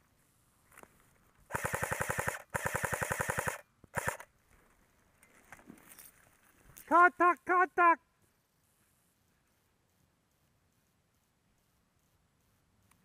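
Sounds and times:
airsoft rifle full-auto bursts: 1.5 - 4.3.

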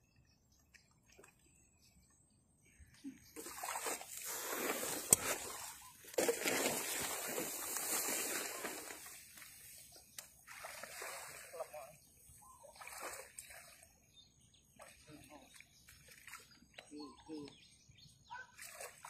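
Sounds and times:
water splashing from wading: 3.4 - 9.2, 10.3 - 13.8, 14.8 - 16.8, 18.5 - 19.0.

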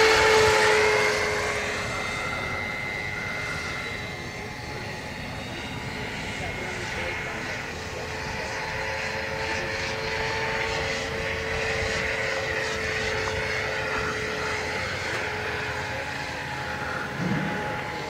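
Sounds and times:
rc helicopter motor and rotor whine: 0.0 - 18.0.

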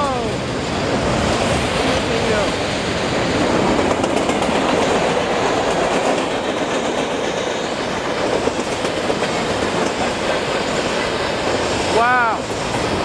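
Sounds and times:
train wheels rolling on rails: 0.0 - 13.0.

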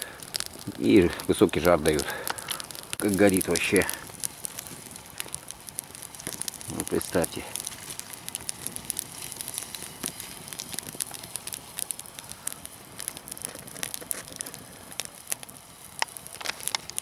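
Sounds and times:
campfire crackling and popping: 0.0 - 17.0.

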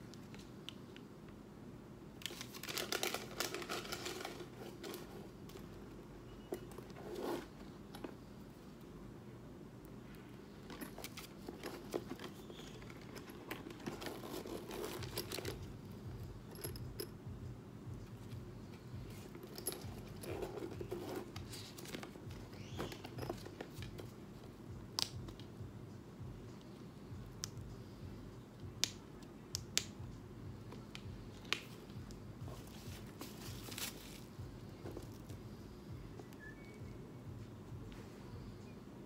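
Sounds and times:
plastic wrap rustling and crinkling: 2.2 - 5.4, 32.7 - 34.3
metal hardware clicking and jingling: 12.9 - 17.3.

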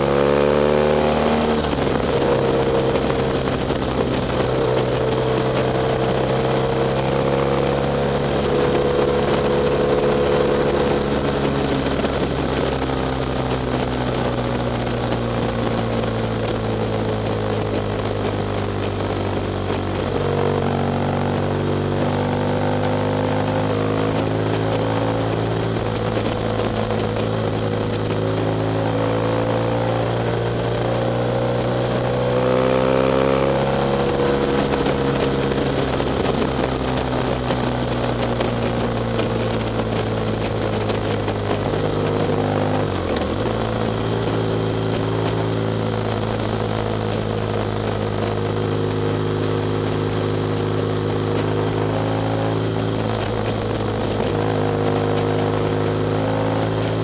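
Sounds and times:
motorcycle engine running: 0.0 - 57.0
wind rushing over microphone: 0.0 - 57.0.

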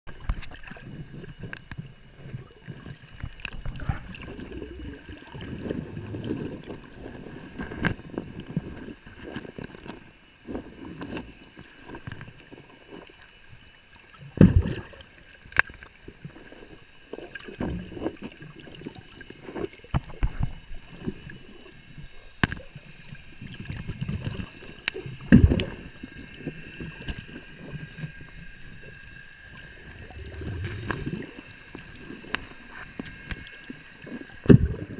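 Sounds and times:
creek water sloshing and gurgling: 0.1 - 34.9.

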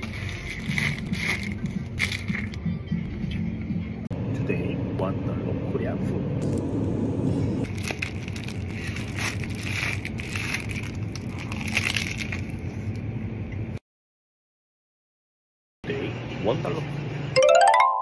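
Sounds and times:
plastic wrapper crinkling: 0.0 - 2.6, 7.6 - 13.0.

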